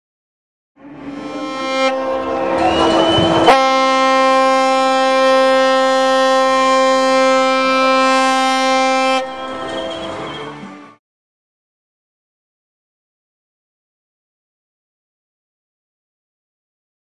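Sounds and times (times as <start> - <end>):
ship's horn blast: 0.8 - 10.0.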